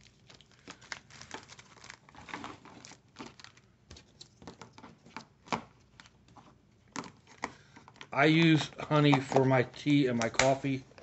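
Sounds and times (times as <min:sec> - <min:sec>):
plastic packets crinkling: 0:00.0 - 0:06.2.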